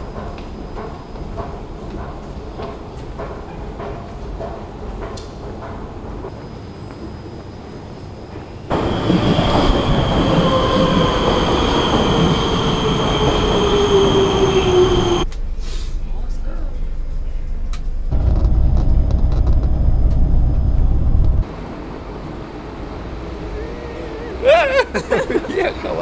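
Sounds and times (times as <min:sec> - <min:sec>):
metro train braking: 0:06.2 - 0:15.9.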